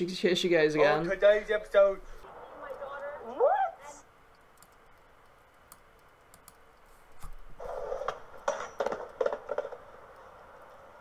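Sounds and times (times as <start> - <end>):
skateboard wheels rolling on concrete: 7.6 - 11.0
skateboard clacks: 8.0 - 10.9.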